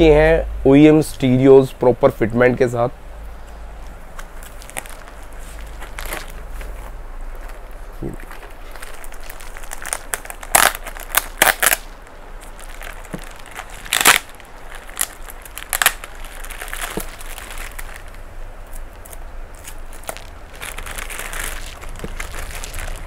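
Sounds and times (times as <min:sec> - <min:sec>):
plastic wrapping crinkling: 0:03.4 - 0:23.0.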